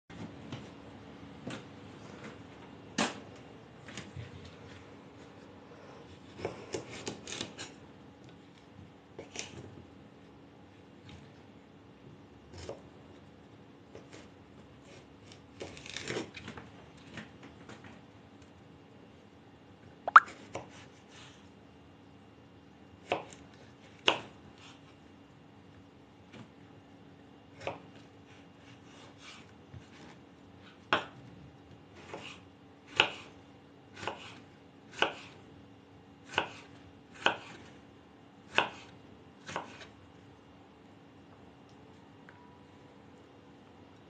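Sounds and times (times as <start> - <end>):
knife chopping on wooden board: 24.0 - 24.3, 32.0 - 33.3, 34.0 - 35.4, 36.2 - 37.7, 38.5 - 39.9.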